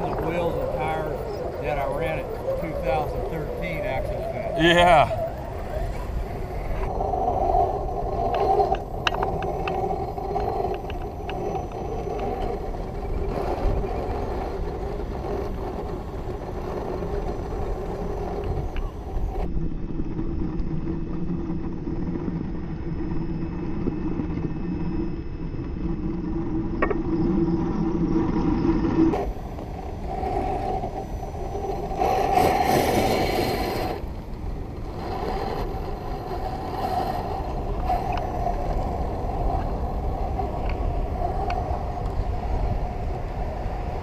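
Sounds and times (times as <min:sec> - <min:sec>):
toy car motor whining: 0:00.0 - 0:06.2, 0:29.0 - 0:39.6.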